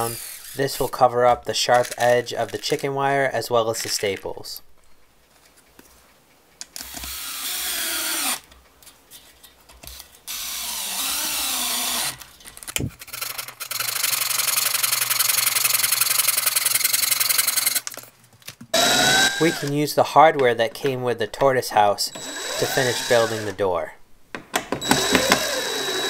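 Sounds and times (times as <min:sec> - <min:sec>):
cordless drill running: 0:06.8 - 0:08.4, 0:10.3 - 0:12.2, 0:18.8 - 0:19.7, 0:22.1 - 0:23.6, 0:24.8 - 0:26.0
hand saw cutting wood: 0:22.2 - 0:23.6.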